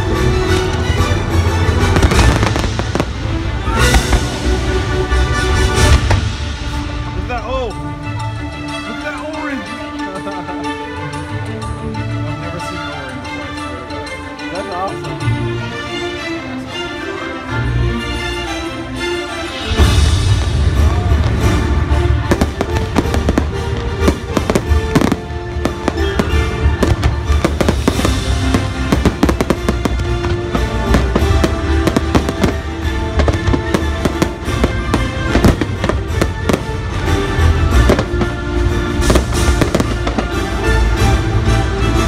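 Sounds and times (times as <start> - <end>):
loud show music: 0.0 - 10.4, 15.2 - 42.0
fireworks bangs: 0.7 - 4.7, 19.7 - 40.7.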